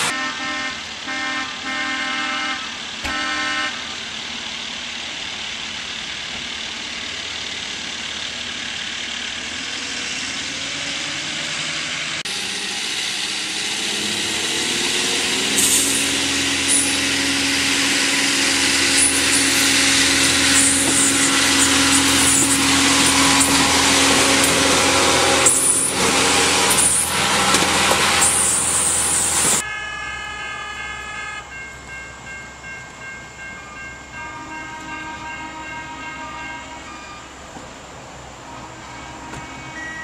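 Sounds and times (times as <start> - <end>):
diesel engine running: 0.0 - 29.6
steady high tones: 10.0 - 29.6.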